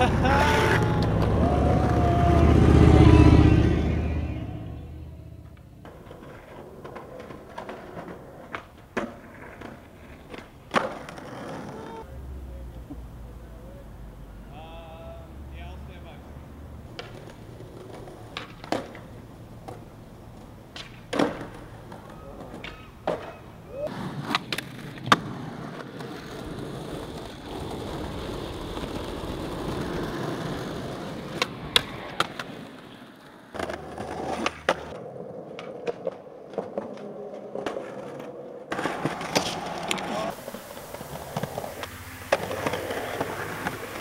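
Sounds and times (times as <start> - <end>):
skateboards rolling on pavement: 0.0 - 44.0
skateboard pops and landings: 5.4 - 12.0, 16.9 - 44.0
board sliding on metal rail: 38.7 - 44.0.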